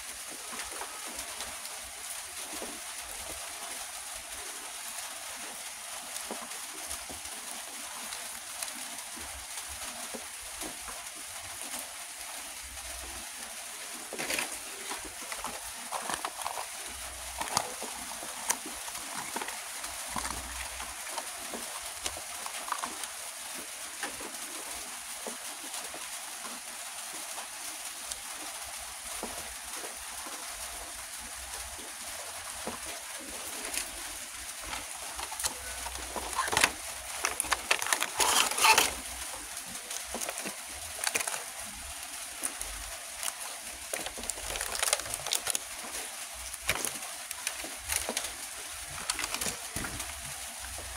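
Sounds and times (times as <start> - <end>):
steady hiss: 0.0 - 50.9
plastic packaging clicks and crinkles: 12.6 - 25.9, 32.6 - 50.9.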